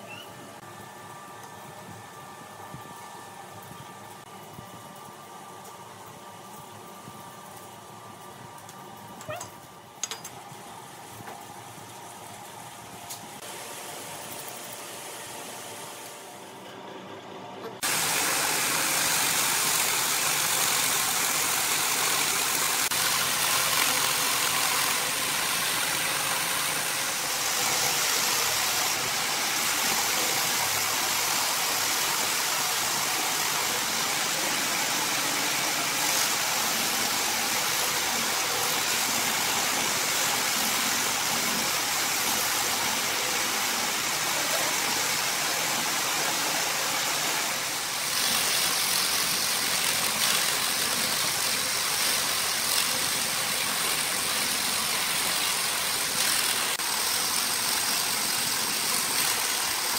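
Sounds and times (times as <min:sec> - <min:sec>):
belt sander sanding wood: 0:17.8 - 0:59.9.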